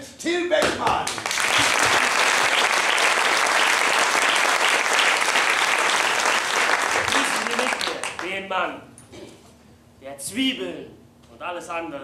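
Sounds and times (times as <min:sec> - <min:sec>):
audience applause: 0:01.1 - 0:08.4.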